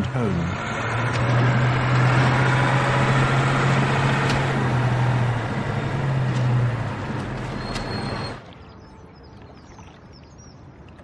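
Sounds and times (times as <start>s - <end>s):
heavy vehicle engine hum: 0.0s - 8.4s
road traffic noise: 0.0s - 8.4s.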